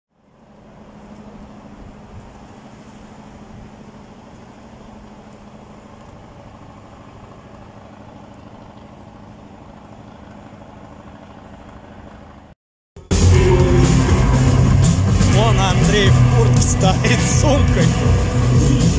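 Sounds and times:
low steady hum: 0:00.1 - 0:12.6
traffic rumble: 0:00.1 - 0:12.6, 0:13.2 - 0:18.9.

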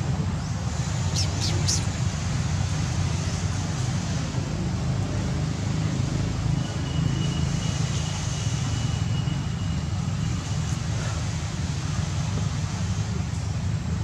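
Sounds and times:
outdoor background rumble: 0:00.0 - 0:14.0.

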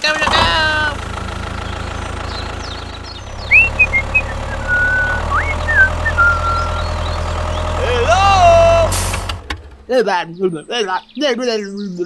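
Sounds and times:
tractor engine idling: 0:00.0 - 0:10.0
high chirps and whistles: 0:02.7 - 0:07.3.

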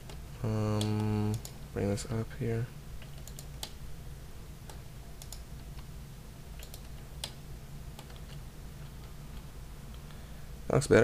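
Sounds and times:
computer keyboard and mouse clicks: 0:00.0 - 0:01.6, 0:03.0 - 0:03.8, 0:04.6 - 0:05.9, 0:06.6 - 0:07.4, 0:08.0 - 0:10.1
steady low hum: 0:00.0 - 0:11.0.

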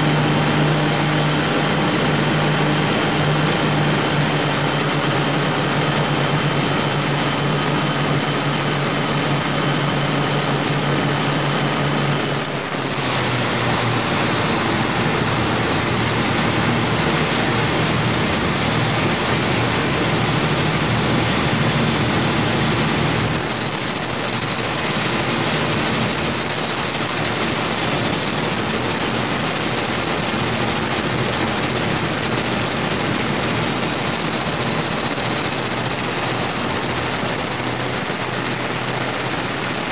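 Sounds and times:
boat diesel engines running: 0:00.0 - 0:39.9
steady engine hum: 0:00.0 - 0:39.9.

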